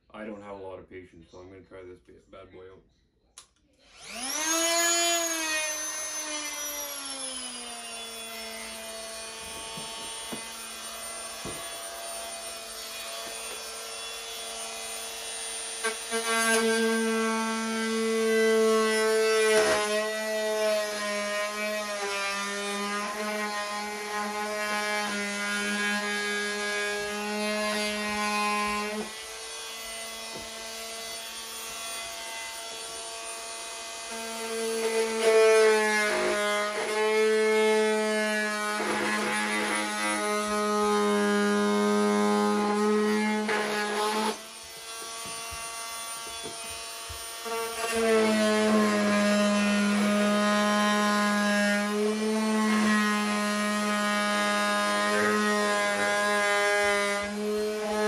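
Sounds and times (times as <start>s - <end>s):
oscillating multi-tool buzzing: 3.8s - 20.7s
blade cutting plastic: 4.0s - 52.8s.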